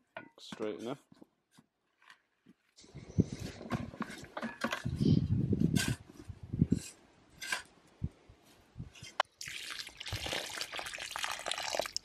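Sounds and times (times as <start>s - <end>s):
water pouring and splashing: 9.2s - 12.0s.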